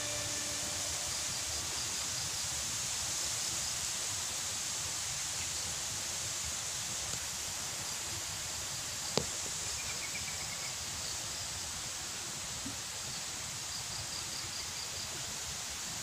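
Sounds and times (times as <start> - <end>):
insects chirping: 0.0 - 2.7
creek hissing: 0.0 - 16.0.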